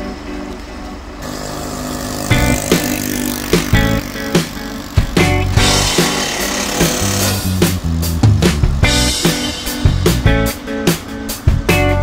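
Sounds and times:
background music with drum hits: 2.3s - 12.0s.

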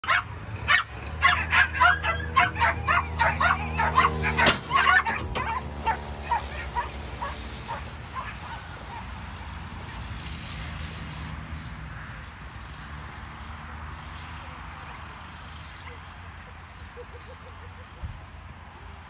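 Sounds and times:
dogs yelping and barking: 0.0s - 9.5s, 15.8s - 18.0s
trap gates cracking open: 3.8s - 6.0s.

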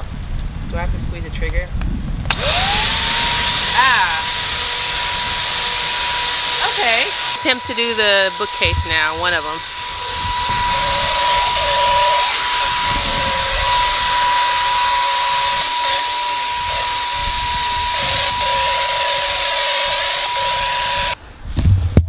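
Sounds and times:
electric paint sprayer whining: 2.3s - 21.2s.

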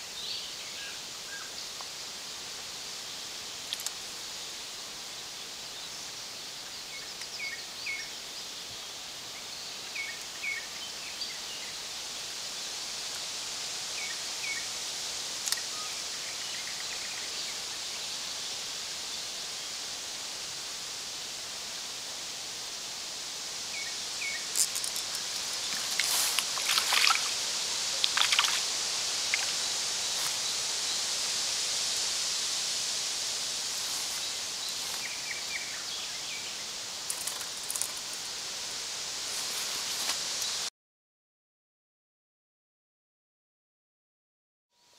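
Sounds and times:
creek flowing: 20.0s - 40.2s.

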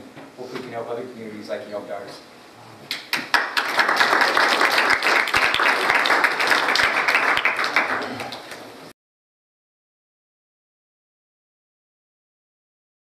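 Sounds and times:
audience applauding: 3.1s - 8.7s.

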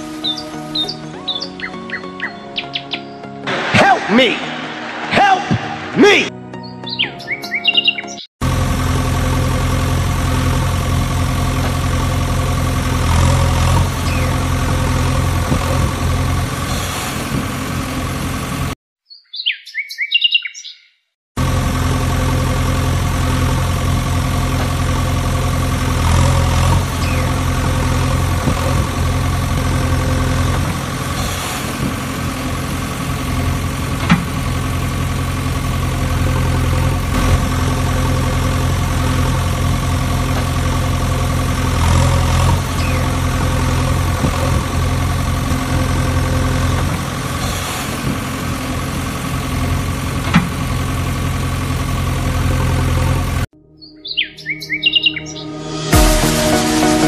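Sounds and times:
bird chirping: 0.0s - 3.4s, 6.6s - 8.3s, 19.0s - 21.0s, 27.0s - 27.4s, 42.8s - 43.1s, 53.6s - 55.6s
engine idling: 8.4s - 18.8s, 21.4s - 53.5s.

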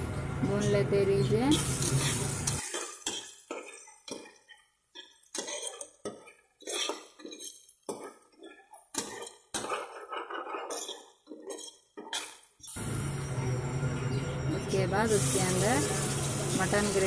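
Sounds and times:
ladle scraping metal pot: 1.9s - 12.4s.

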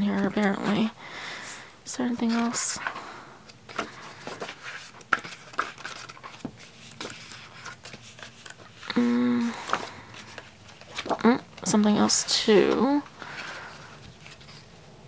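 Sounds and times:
pages rustling: 2.0s - 14.9s
person humming: 8.9s - 9.6s.

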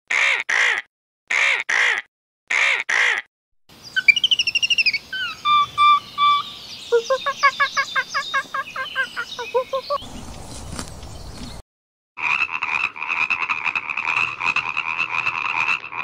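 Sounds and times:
outdoor background noise: 3.7s - 11.6s, 12.2s - 16.0s
birdsong trills and chirps: 3.8s - 11.6s
bird cawing: 4.0s - 11.3s.

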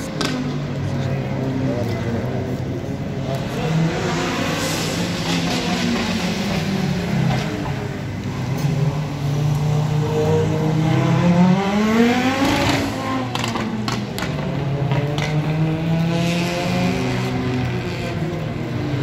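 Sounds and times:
rally car engine revving: 0.0s - 19.0s.

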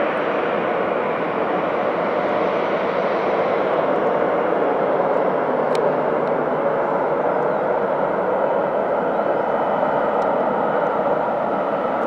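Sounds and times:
jet engines roaring: 0.0s - 12.0s
faint click: 5.7s - 6.4s.

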